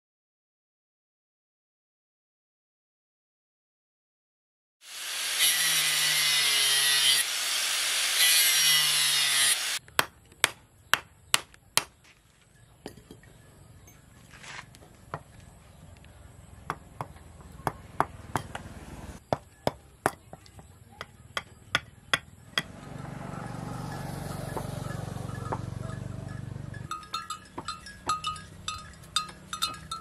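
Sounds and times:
angle grinder cutting wood: 4.8 - 9.8.

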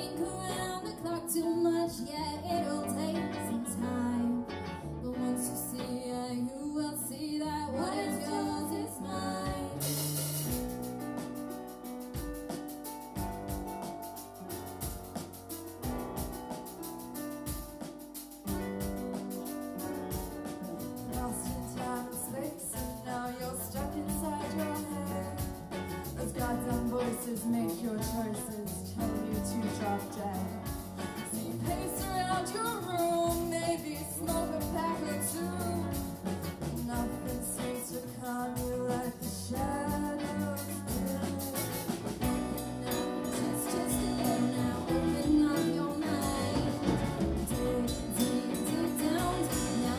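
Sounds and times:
live band playing: 0.0 - 6.2, 7.2 - 49.9
women singing: 0.0 - 10.1, 21.0 - 49.9.

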